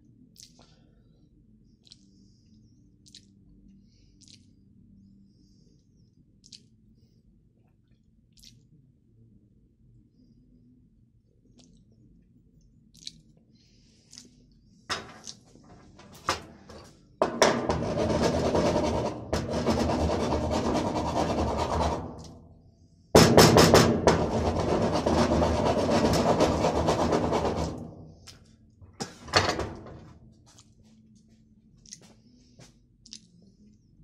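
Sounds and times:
loud harsh scraping: 15.9 - 22.5, 23.2 - 28.3.

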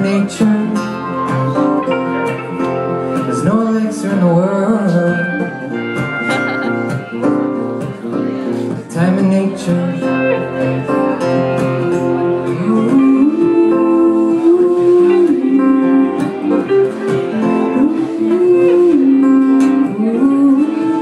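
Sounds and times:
acoustic guitar strumming: 0.0 - 21.0
guitar lead with bending notes: 0.0 - 21.0.

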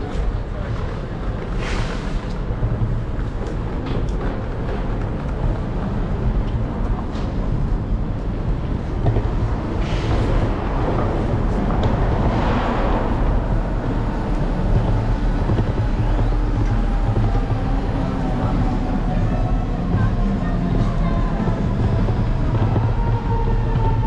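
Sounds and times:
street traffic: 0.0 - 24.0
wheels rumbling over bricks: 0.0 - 24.0
wind on microphone: 4.9 - 24.0
loud rushing sound: 9.2 - 19.1.

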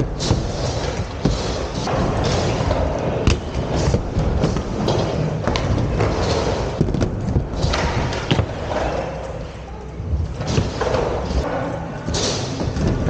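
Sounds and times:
inline skates rolling on wood: 0.0 - 9.6
skates knocking on ramp: 3.2 - 8.7.

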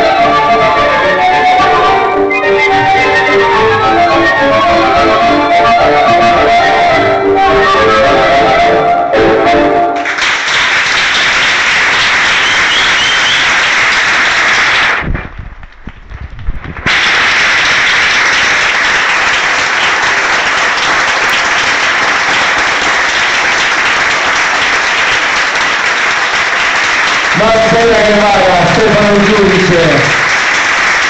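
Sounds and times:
audience applauding: 10.0 - 31.0.

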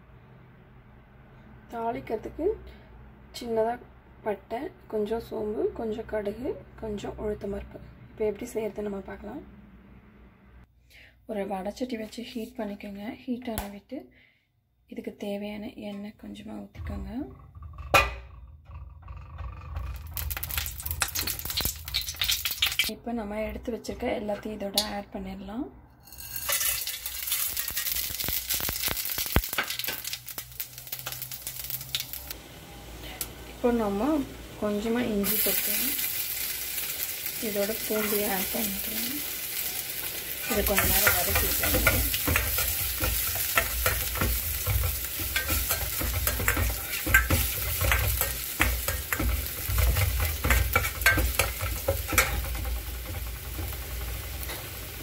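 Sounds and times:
spices sizzling in hot oil: 19.7 - 22.9, 26.0 - 55.0
spoon scraping and clinking pan: 26.0 - 28.1, 40.4 - 54.7.

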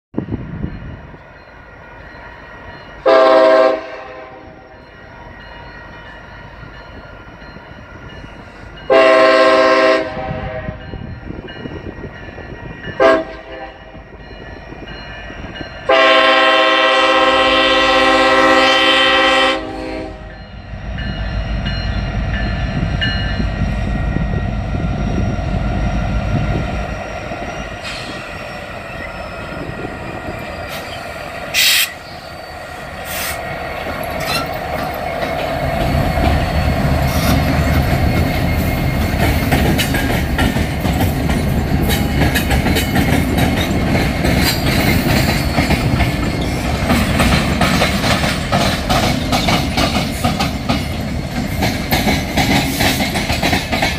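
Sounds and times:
diesel locomotives rumbling past: 0.1 - 53.9
locomotive air horn blasts: 3.0 - 4.6, 8.9 - 10.8, 13.0 - 13.8, 15.9 - 20.4, 31.5 - 32.1.

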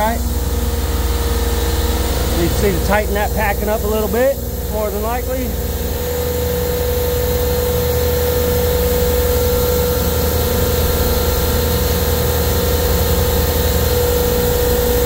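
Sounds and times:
refrigeration compressor drone: 0.0 - 15.0.

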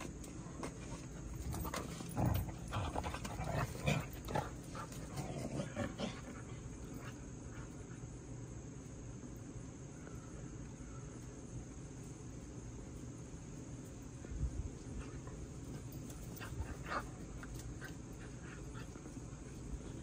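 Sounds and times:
insect drone: 0.0 - 20.0
dogs growling in play: 1.3 - 7.9, 14.9 - 20.0.

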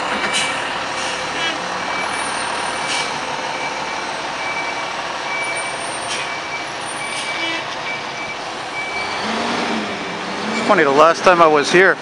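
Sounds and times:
diesel fire engine running: 0.0 - 12.0
backup alarm beeping: 1.9 - 9.1.

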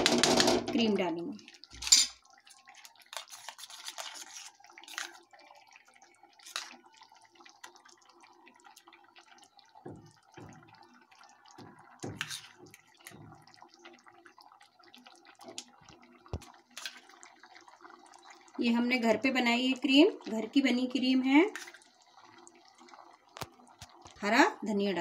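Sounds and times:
wet plops of cream into gravy: 2.4 - 18.6, 21.5 - 24.2.

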